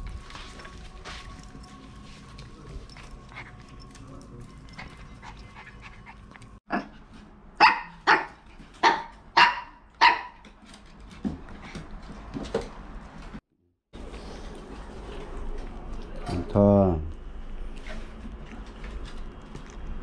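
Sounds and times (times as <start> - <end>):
dogs barking: 7.6 - 10.4.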